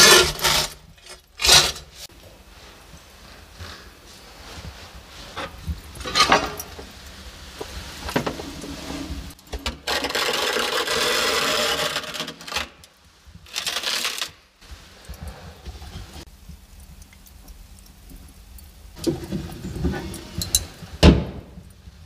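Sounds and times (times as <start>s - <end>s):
metal baking tray scraping: 0.0s - 2.1s, 5.2s - 6.8s, 7.6s - 12.8s.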